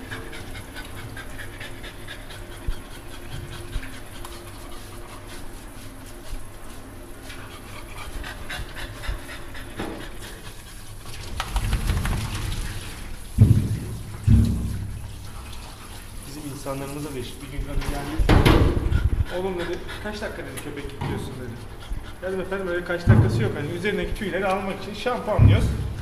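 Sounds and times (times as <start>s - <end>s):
dog panting: 0.0s - 13.1s, 15.1s - 26.0s
steady low hum: 0.0s - 26.0s.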